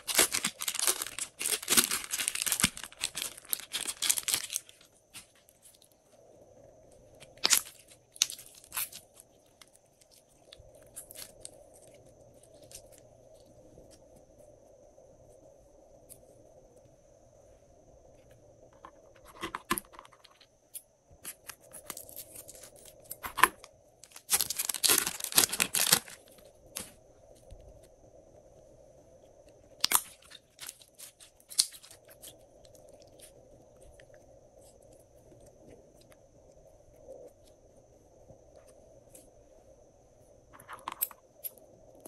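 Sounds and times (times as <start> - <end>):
slime peeled off crinkling plastic: 0.0 - 4.9, 24.0 - 26.4.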